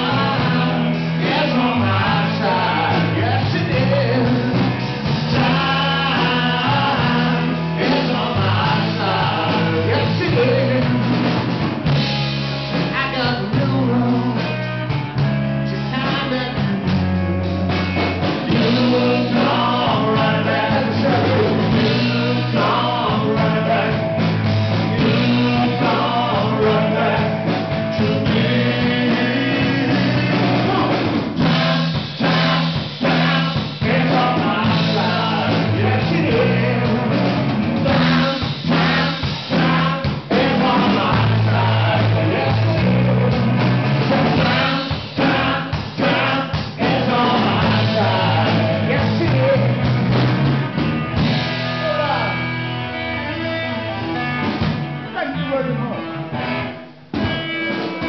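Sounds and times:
person singing: 0.0s - 11.3s, 12.7s - 14.7s, 18.5s - 49.9s
rock band playing live: 0.0s - 58.0s.

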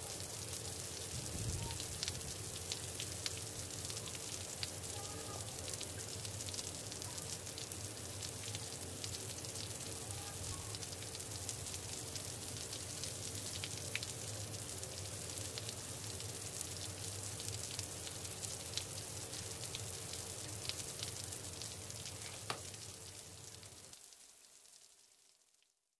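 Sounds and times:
crackly hiss: 0.0s - 25.7s.

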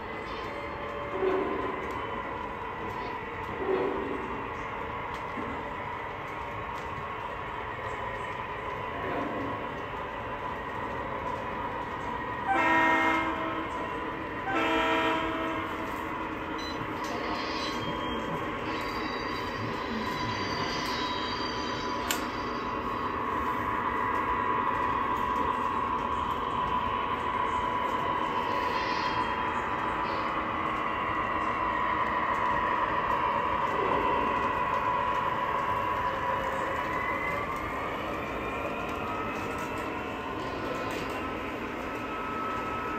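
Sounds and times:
model trains rolling hum: 0.0s - 42.9s
model train air horn: 12.5s - 13.6s, 14.4s - 15.7s.

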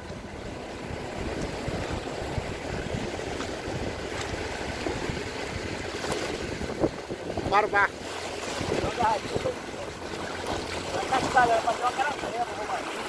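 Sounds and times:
wind on microphone: 0.0s - 9.6s
sea surf: 0.0s - 13.0s.

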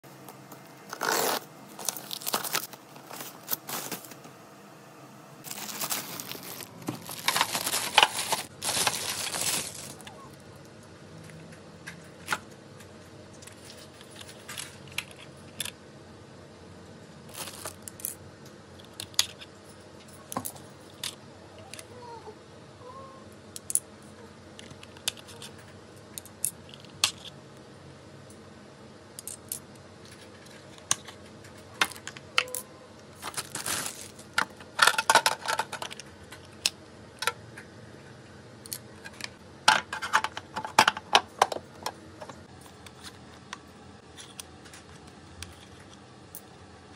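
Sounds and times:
hard plastic parts clattering: 5.5s - 10.2s, 33.2s - 36.4s, 39.0s - 42.4s.

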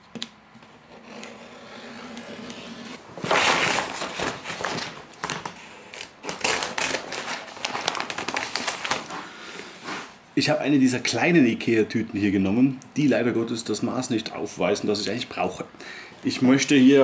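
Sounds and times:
plastic bag rustling and crinkling: 3.1s - 10.1s.

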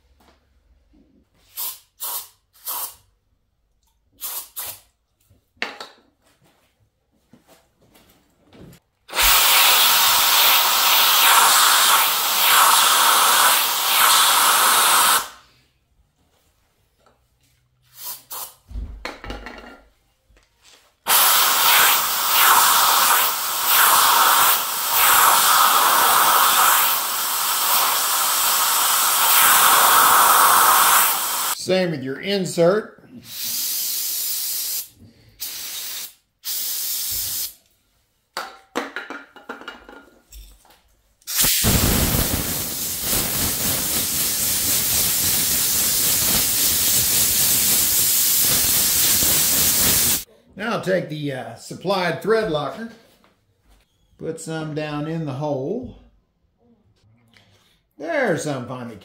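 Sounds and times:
aerosol spray spurts: 4.2s - 4.8s, 9.1s - 15.4s, 17.9s - 18.6s, 21.1s - 31.6s, 41.3s - 50.3s
compressed air blow gun hissing: 9.1s - 15.4s, 21.1s - 31.6s, 33.2s - 37.6s, 41.3s - 50.3s.

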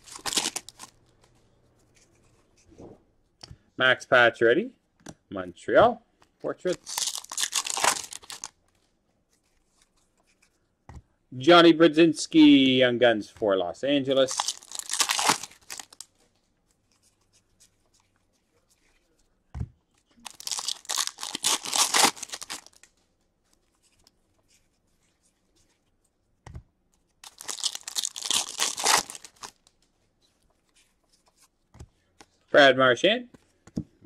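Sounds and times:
wrapper tearing and crinkling: 0.0s - 1.0s, 6.7s - 8.6s, 14.2s - 16.1s, 20.2s - 22.9s, 27.2s - 29.7s.

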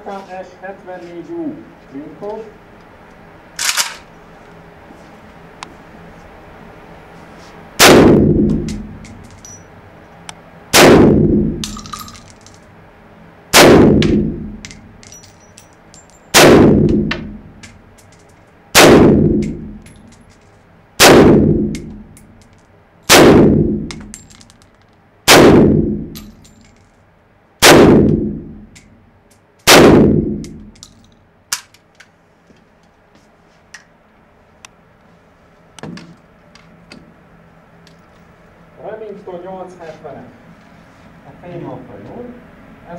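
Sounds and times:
gunshots echoing indoors: 7.8s - 9.0s, 10.7s - 11.9s, 13.5s - 14.8s, 16.3s - 17.6s, 18.7s - 19.8s, 21.0s - 22.1s, 23.1s - 24.2s, 25.3s - 26.3s, 27.6s - 28.8s, 29.7s - 30.8s.

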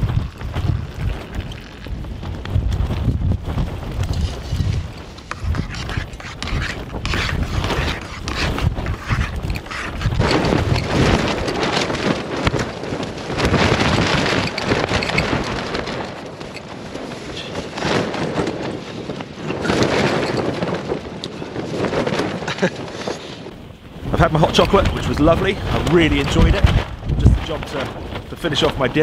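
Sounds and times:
tent fabric shaking: 0.0s - 5.0s, 9.7s - 17.1s
gusting wind: 0.0s - 29.0s.

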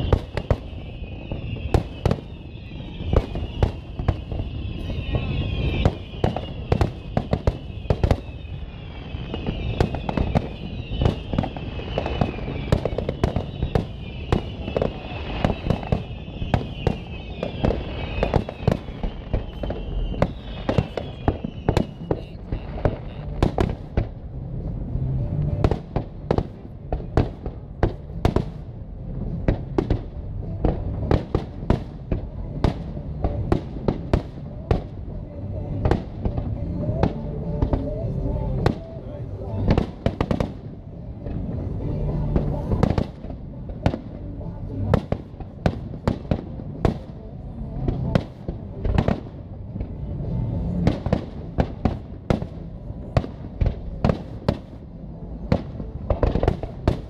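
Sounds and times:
high wavering whistle: 0.0s - 22.3s
deep firework booms: 0.0s - 24.4s, 25.5s - 39.0s, 39.6s - 54.8s
firework bursts and crackles: 0.0s - 57.0s.

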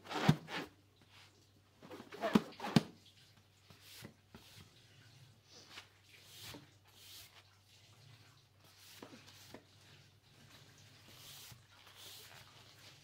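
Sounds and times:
latex balloons rustling: 1.8s - 2.9s.

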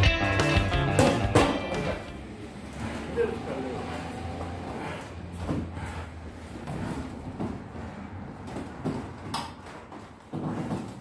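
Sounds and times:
footsteps on canvas floor: 4.4s - 11.0s.

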